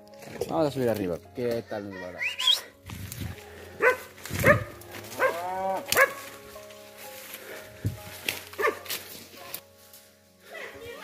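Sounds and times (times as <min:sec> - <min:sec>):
dog barking: 0:03.8 - 0:06.2, 0:08.6 - 0:08.9.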